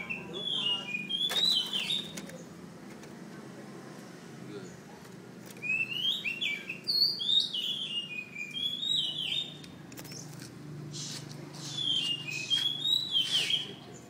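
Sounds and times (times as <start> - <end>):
bird singing whistled phrases: 0.0 - 2.2, 5.6 - 10.2, 11.0 - 13.8.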